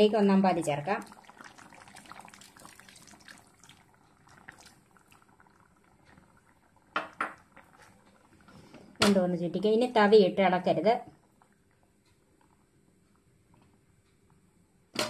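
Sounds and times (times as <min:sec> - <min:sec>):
faint bubbling: 0:00.0 - 0:13.8
liquid pouring into pan: 0:00.8 - 0:08.8.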